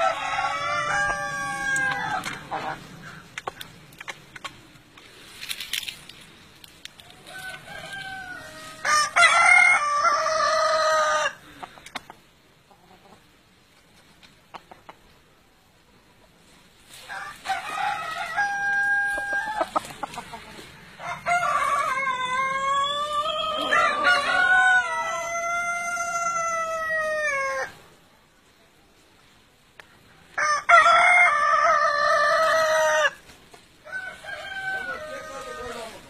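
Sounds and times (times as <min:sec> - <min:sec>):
roosters crowing: 0:00.0 - 0:03.8, 0:07.0 - 0:11.6, 0:16.9 - 0:27.8, 0:30.3 - 0:36.0.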